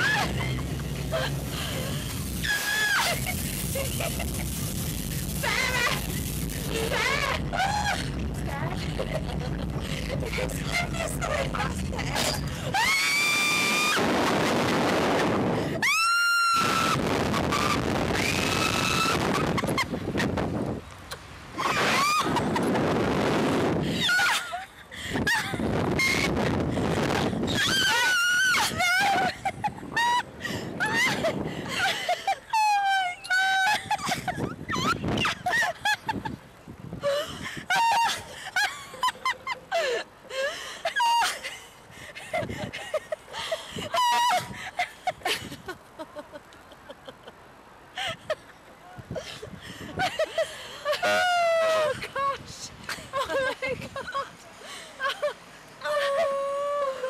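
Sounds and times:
women screaming: 0.0 - 1.3, 2.4 - 3.9, 5.4 - 6.1, 6.7 - 8.2, 12.3 - 14.1, 15.7 - 19.6, 21.6 - 22.6, 23.9 - 24.6, 27.4 - 31.9, 32.5 - 35.6, 37.0 - 38.3, 40.9 - 41.5, 43.9 - 44.6, 50.9 - 52.3, 55.2 - 57.0
woman laughing hard: 0.0 - 4.6, 5.3 - 13.8, 19.0 - 20.3, 21.6 - 22.9, 23.8 - 36.4, 37.0 - 47.4, 48.0 - 48.5, 49.1 - 57.0
rushing wind noise: 0.0 - 32.5, 33.7 - 38.5, 41.9 - 43.0, 49.0 - 50.3.

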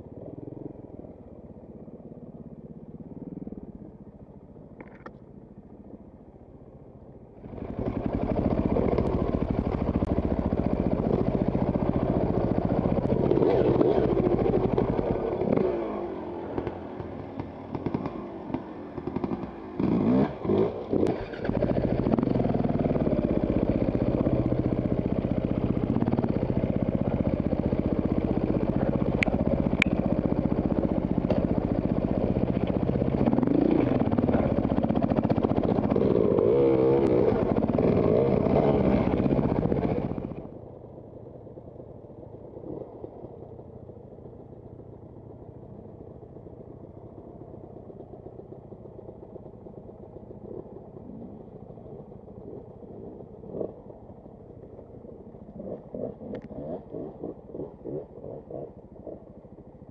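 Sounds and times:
dirt bike engine revving: 10.8 - 40.5, 55.6 - 59.2.

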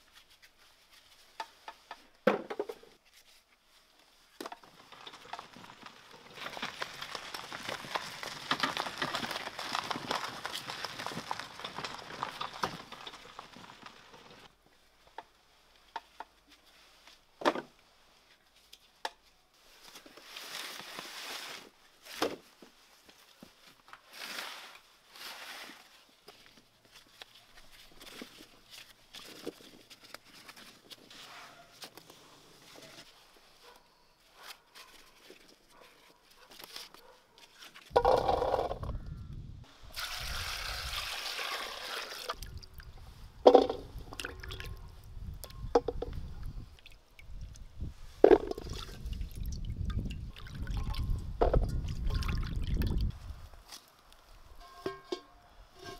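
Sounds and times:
horse hooves on dirt road: 4.6 - 14.5.

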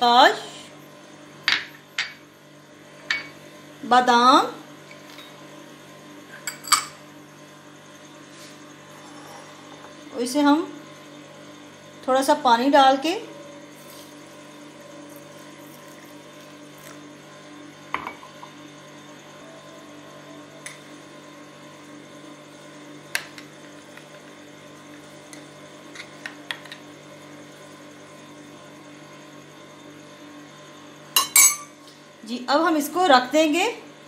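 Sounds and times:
spoon clinking against glass: 31.2 - 31.8.

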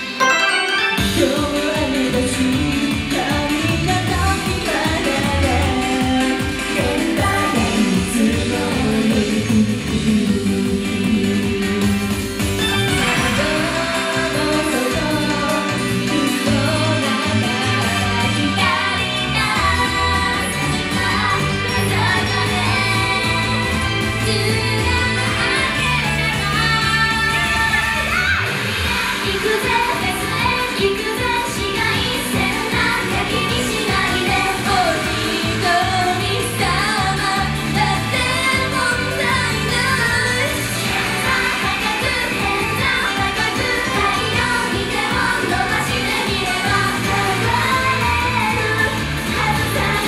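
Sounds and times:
pop backing with bass and guitar: 0.0 - 50.0
women singing together: 1.4 - 12.0, 28.8 - 50.0.

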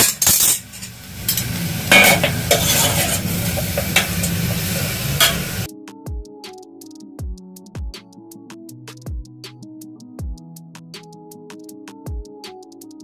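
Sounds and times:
fish sizzling: 0.0 - 5.7
metal spoon scraping pot: 0.0 - 5.7
music with a beat: 5.7 - 13.0.

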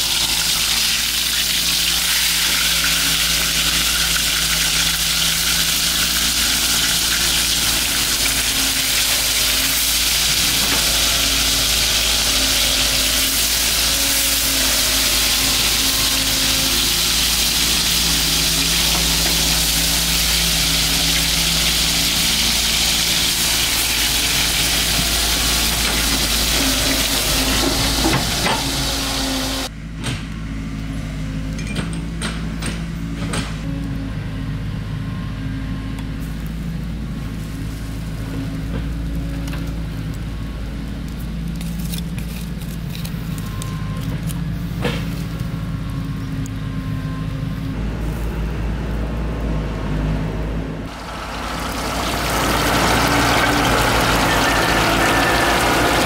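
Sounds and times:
fish sizzling in hot oil: 0.0 - 29.7, 50.9 - 56.0.

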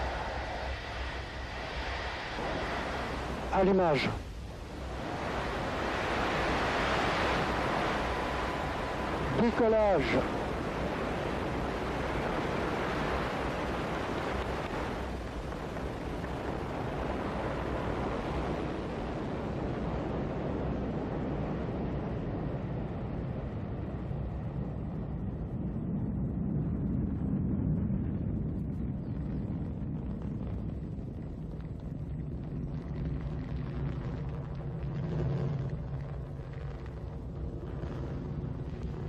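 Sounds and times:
rocket launch rushing rumble: 0.7 - 19.1.

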